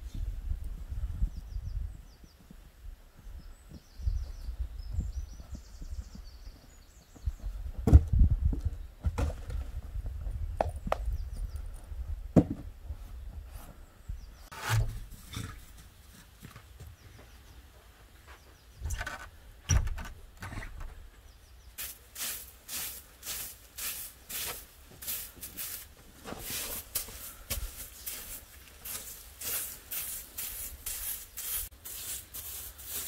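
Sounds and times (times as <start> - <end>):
knocks and thumps: 7.8 - 9.6, 18.8 - 21.0
broom sweeping snow: 21.8 - 33.0.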